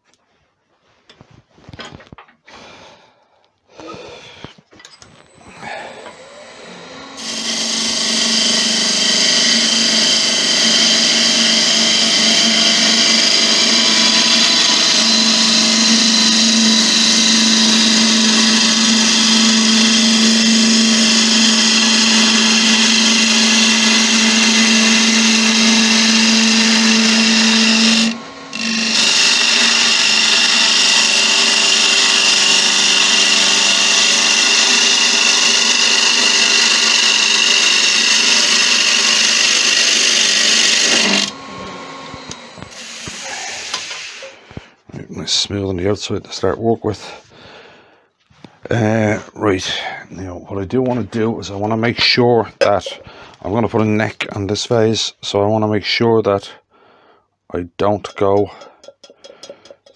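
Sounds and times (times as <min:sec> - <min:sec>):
wood lathe humming: 0:05.2 - 0:44.7
hiss of wood shavings: 0:42.8 - 0:44.4.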